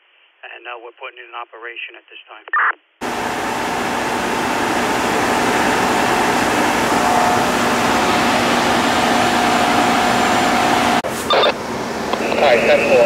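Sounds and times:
faint steady whine: 0:03.0 - 0:13.0
fire truck engine running: 0:03.0 - 0:13.0.

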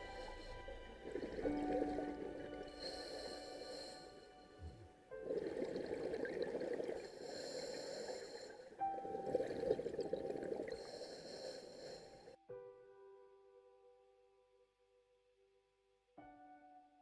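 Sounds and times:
diver exhaling bubbles underwater: 0:05.2 - 0:07.2.

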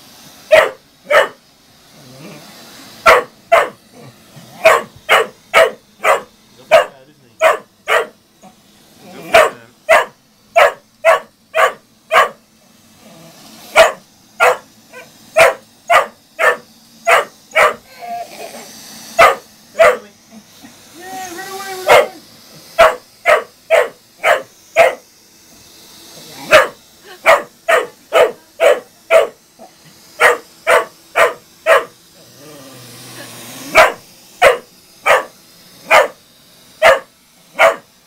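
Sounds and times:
dog barking: 0:00.5 - 0:01.4, 0:03.0 - 0:03.8, 0:04.6 - 0:08.2, 0:09.2 - 0:12.4, 0:13.7 - 0:17.8, 0:19.2 - 0:20.1, 0:21.9 - 0:22.2, 0:22.8 - 0:25.0, 0:26.4 - 0:29.4, 0:30.2 - 0:32.0, 0:33.7 - 0:36.2, 0:36.8 - 0:37.9.

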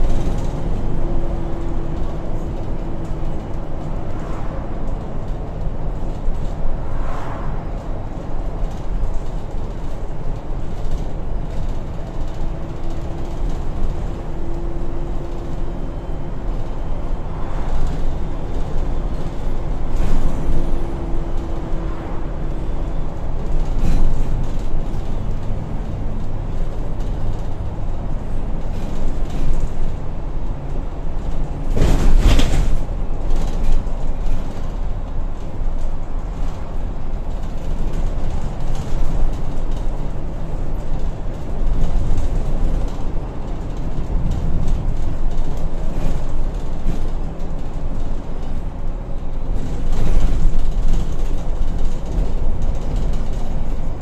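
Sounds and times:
bus engine drone: 0:00.0 - 0:54.0
road rumble: 0:00.0 - 0:54.0.

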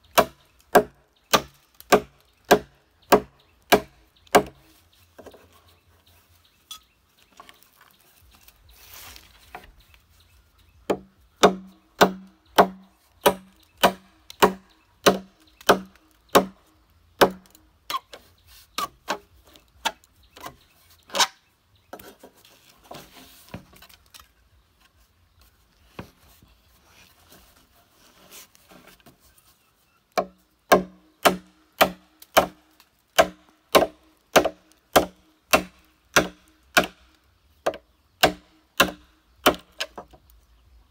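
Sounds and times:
machete chopping bamboo: 0:00.1 - 0:05.4, 0:10.8 - 0:21.4, 0:30.2 - 0:40.2.

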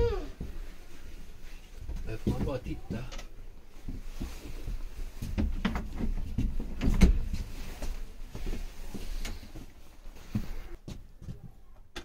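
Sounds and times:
irregular knocks and thumps: 0:01.8 - 0:03.2, 0:03.8 - 0:07.6.

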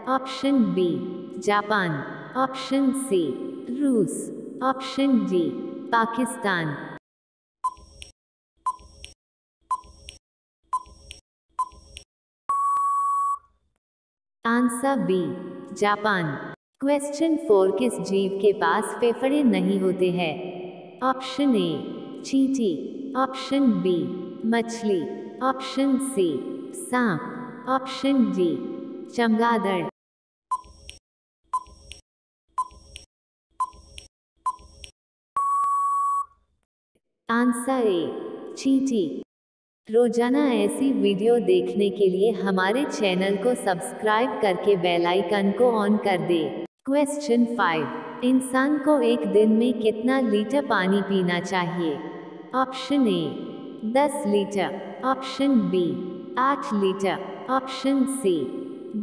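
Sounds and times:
electronic tick-beeps: 0:07.6 - 0:08.1, 0:08.7 - 0:13.5, 0:30.5 - 0:31.0, 0:31.6 - 0:32.0, 0:32.6 - 0:36.4
long steady beep: 0:12.5 - 0:13.5, 0:35.4 - 0:36.4.

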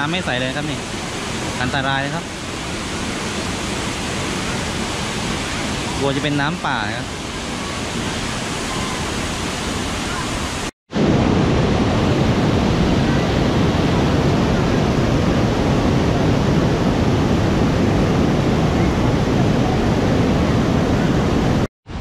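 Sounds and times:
waterfall rushing over rocks: 0:00.0 - 0:16.0.

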